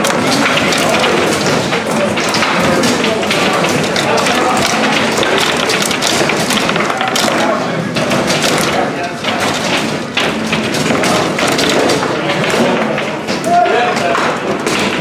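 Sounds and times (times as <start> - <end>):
foosball knocks and thuds: 0.0 - 15.0
loud chatter: 0.0 - 15.0.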